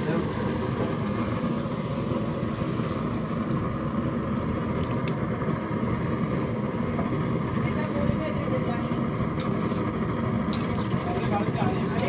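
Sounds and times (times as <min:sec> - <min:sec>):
curry simmering: 0:00.0 - 0:12.0
stove burner flame roaring: 0:00.0 - 0:12.0.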